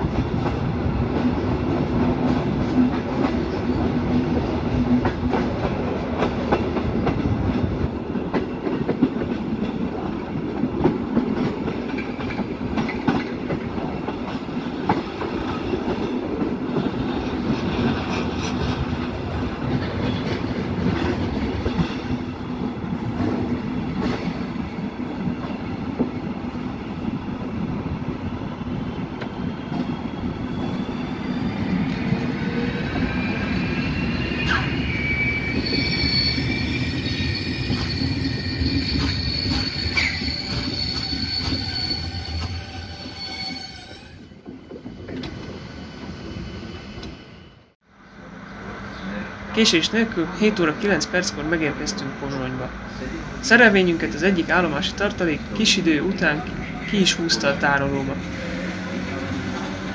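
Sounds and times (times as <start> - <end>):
train wheels rumbling: 0.0 - 47.7, 48.3 - 59.9
high wheel squeal: 30.4 - 47.7.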